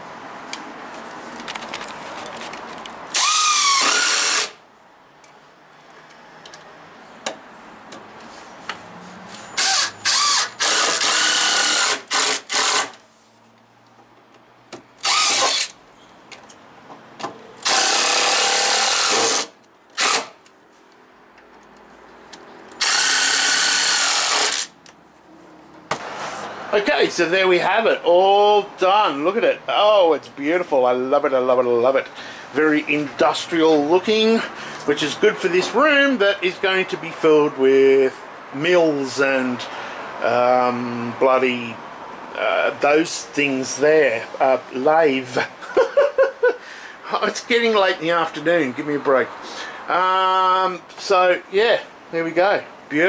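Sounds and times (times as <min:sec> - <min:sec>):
impact driver driving screws: 0:03.1 - 0:04.6, 0:09.6 - 0:13.0, 0:15.0 - 0:15.8, 0:17.6 - 0:20.4, 0:22.8 - 0:24.8.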